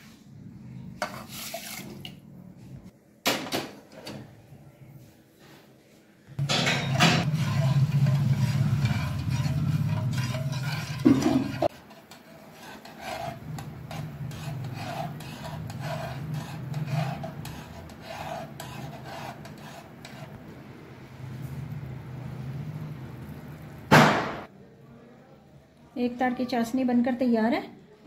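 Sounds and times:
spoon scraping a saucepan: 0:01.0 - 0:02.1, 0:06.4 - 0:20.5.

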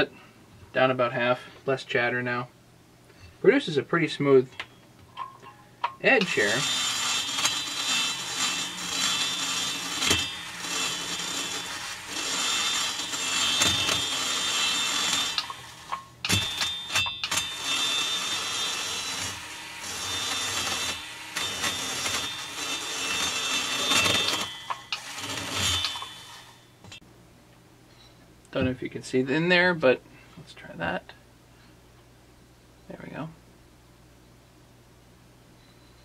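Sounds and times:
rotary tool grinding whine: 0:06.1 - 0:27.0.

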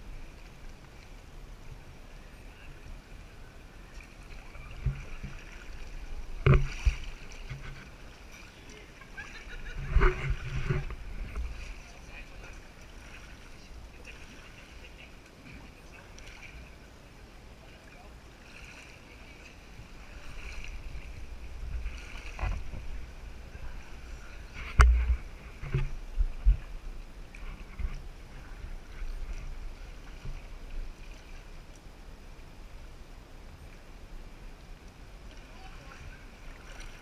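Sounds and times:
paddling water sounds: 0:00.0 - 0:37.0
knocks and thumps on kayak: 0:06.3 - 0:07.9, 0:09.7 - 0:11.6, 0:21.6 - 0:23.1, 0:24.5 - 0:26.7.

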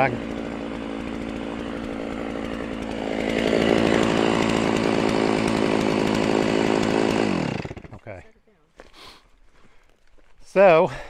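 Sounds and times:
chainsaw running: 0:00.0 - 0:08.3.

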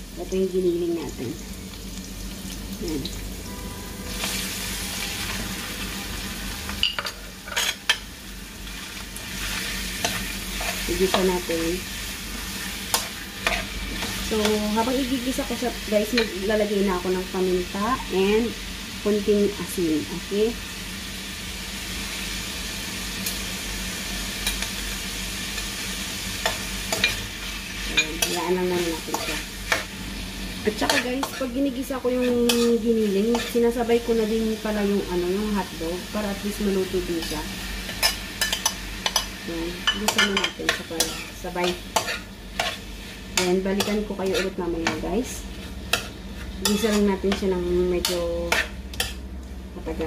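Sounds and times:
meat sizzling in a wok: 0:00.0 - 0:50.0
spoon scraping a wok: 0:06.8 - 0:08.0, 0:09.4 - 0:11.5, 0:12.6 - 0:14.7, 0:26.4 - 0:29.9, 0:30.7 - 0:33.8, 0:37.1 - 0:49.2.

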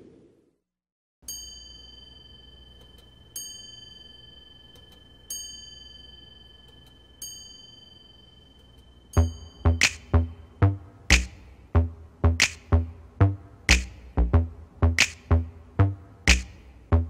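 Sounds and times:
bell-like chimes: 0:01.2 - 0:10.6
steady high held tone: 0:01.2 - 0:11.7.

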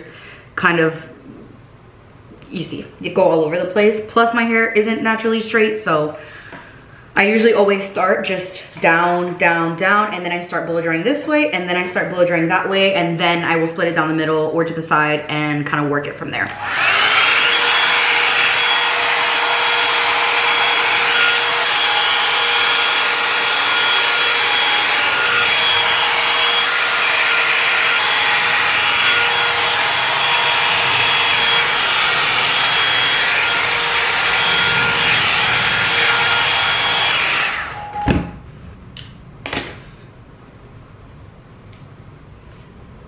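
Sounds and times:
hot-air brush fan whining: 0:16.4 - 0:39.8.

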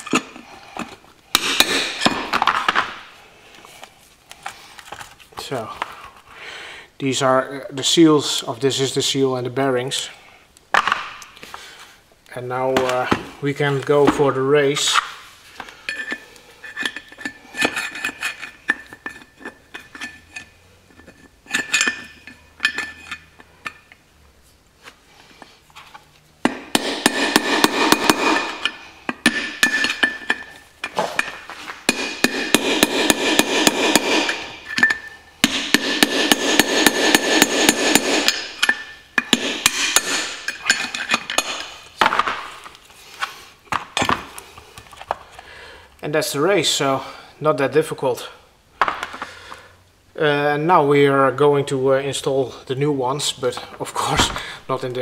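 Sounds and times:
hammer striking metal drift: 0:26.5 - 0:30.2, 0:31.9 - 0:40.7.

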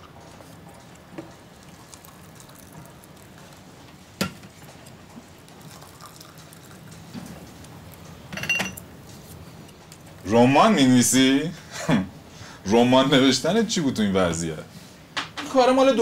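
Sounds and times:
water pouring into glass cup: 0:01.5 - 0:03.8, 0:04.6 - 0:08.0.

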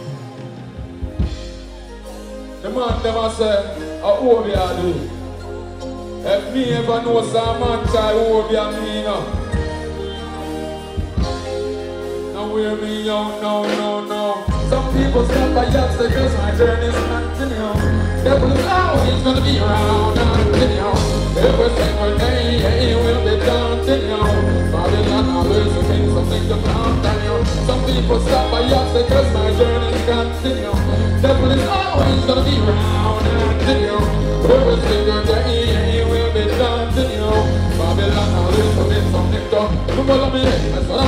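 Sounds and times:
heavy bass: 0:00.0 - 0:13.6, 0:14.5 - 0:41.0
live band music: 0:00.0 - 0:41.0
person singing: 0:00.0 - 0:41.0
steady drum beat: 0:07.5 - 0:08.6, 0:14.5 - 0:41.0.

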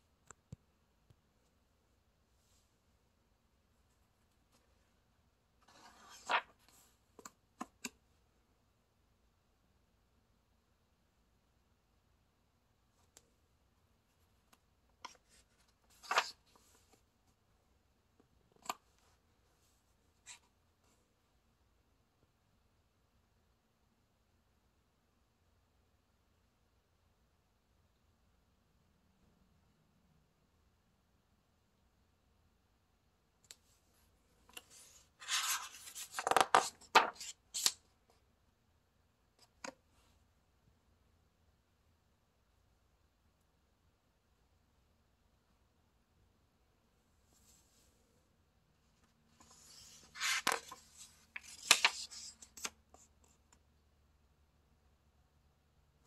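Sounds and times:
book page turning: 0:05.6 - 0:08.0, 0:15.0 - 0:17.0, 0:34.5 - 0:37.8, 0:49.3 - 0:52.8.

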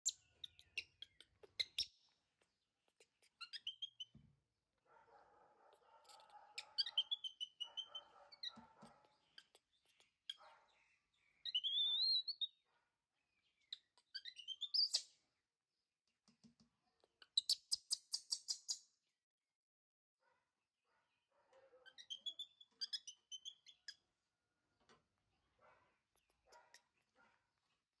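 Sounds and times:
baby monkey squeaks and chirps: 0:00.0 - 0:04.2, 0:06.0 - 0:10.5, 0:11.2 - 0:12.6, 0:13.6 - 0:15.1, 0:17.0 - 0:18.9, 0:21.8 - 0:24.1.

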